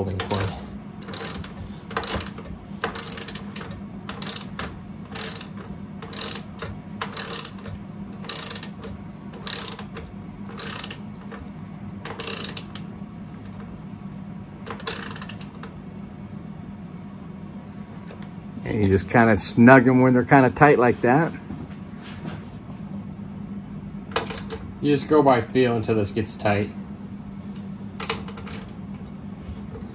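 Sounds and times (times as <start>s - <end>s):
socket ratchet clicking: 0.3s - 10.0s, 10.6s - 11.0s, 12.1s - 12.9s, 14.7s - 15.6s, 24.1s - 24.6s, 28.0s - 28.8s.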